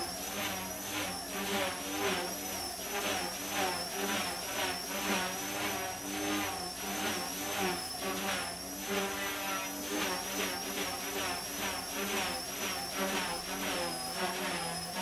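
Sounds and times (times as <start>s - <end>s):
rc helicopter motors whining: 0.0s - 15.0s
rotor blades buzzing: 0.0s - 15.0s.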